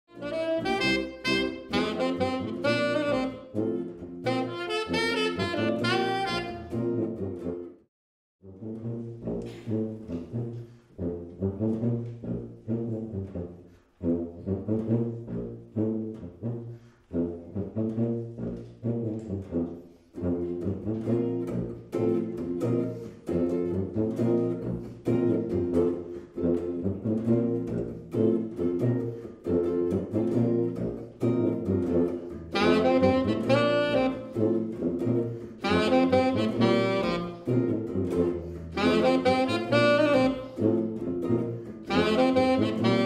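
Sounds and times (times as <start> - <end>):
electric guitar: 0.1 - 7.8, 20.2 - 43.0
saxophone: 0.1 - 43.0
tuba bass line: 0.1 - 43.0.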